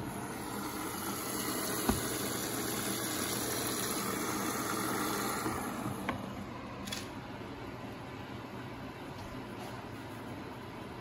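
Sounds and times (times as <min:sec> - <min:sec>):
water rushing into washing machine: 0:00.0 - 0:06.1.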